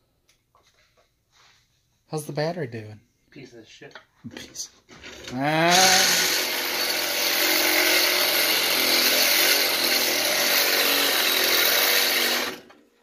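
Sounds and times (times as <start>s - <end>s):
cordless drill grinding into steel: 4.9s - 12.8s.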